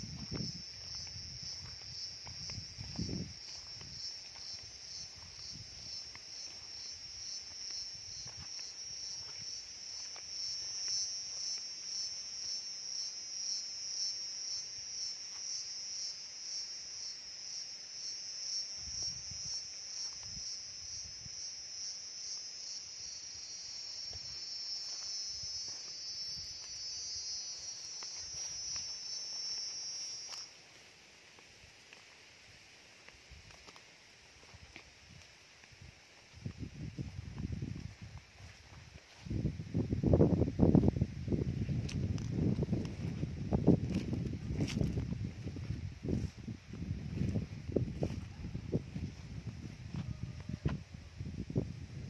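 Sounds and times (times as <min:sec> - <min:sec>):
insects chirring: 0:00.0 - 0:52.0.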